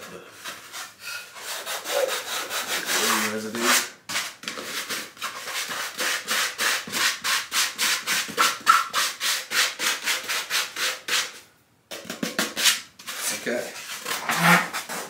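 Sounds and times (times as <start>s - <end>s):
sandpaper rubbing on styrofoam: 0.5s - 11.3s.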